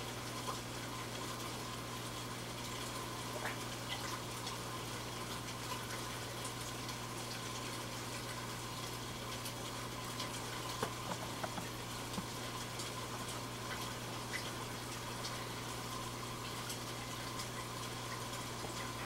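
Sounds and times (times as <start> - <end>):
aquarium water bubbling: 0.0 - 19.0
fish popping at water surface: 10.7 - 12.4.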